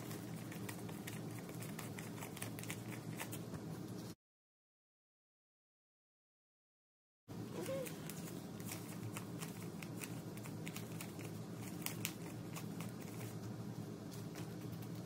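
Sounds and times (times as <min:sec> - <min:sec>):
faint steady hum: 0:00.0 - 0:04.2, 0:07.3 - 0:15.0.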